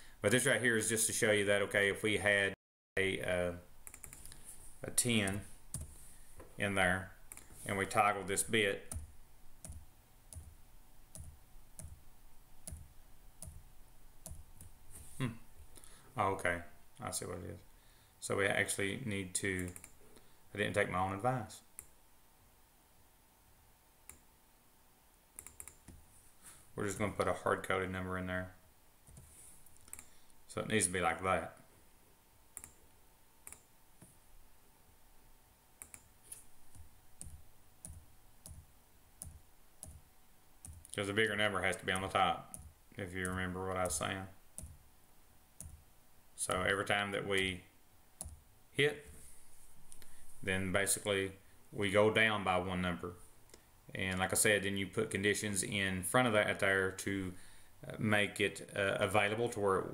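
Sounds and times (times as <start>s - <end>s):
computer mouse clicks: 3.8s - 4.4s, 19.6s - 20.0s, 25.4s - 26.0s, 29.1s - 30.1s, 32.6s - 34.2s, 35.8s - 38.6s
faint sharp computer clicks: 19.6s - 20.0s, 25.4s - 26.0s, 32.6s - 32.8s, 35.8s - 36.1s.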